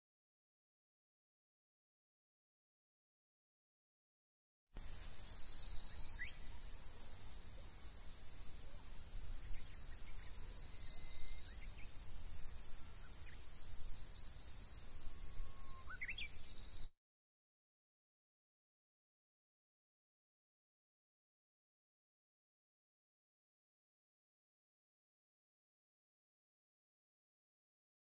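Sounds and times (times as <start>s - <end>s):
insect chorus buzzing: 4.8s - 17.0s
bird chirps: 5.3s - 6.6s, 9.3s - 16.9s.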